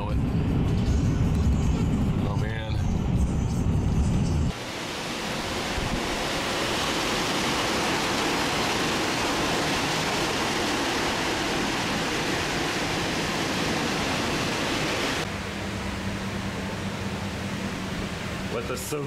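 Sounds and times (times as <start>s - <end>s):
wind rushing through trees: 4.5s - 15.5s.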